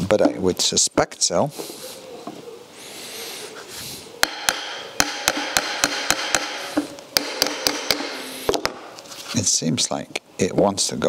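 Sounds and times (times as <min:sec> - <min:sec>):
hammer striking metal: 0:04.2 - 0:08.8.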